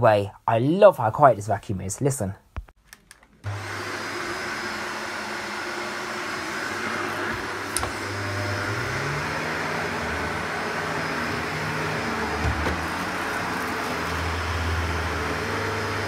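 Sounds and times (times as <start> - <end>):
vacuum cleaner running on carpet: 3.5 - 16.0.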